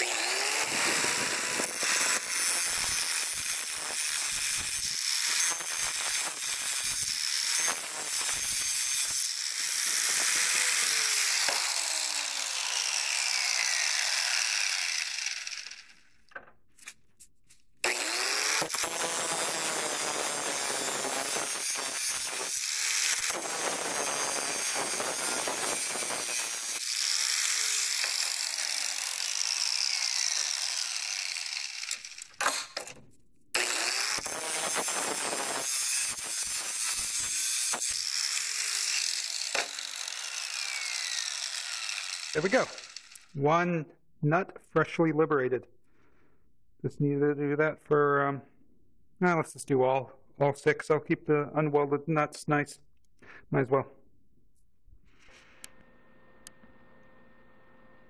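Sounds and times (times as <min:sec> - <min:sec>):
angle grinder cutting metal: 0:00.0 - 0:16.0, 0:17.8 - 0:33.0, 0:33.6 - 0:43.4
grinder clicks: 0:17.8 - 0:43.3.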